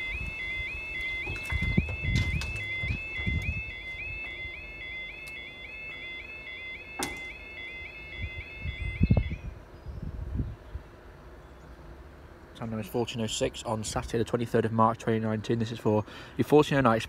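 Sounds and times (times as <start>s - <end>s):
level crossing warbling alarm: 0.0s - 9.5s
low thumps: 1.0s - 4.5s.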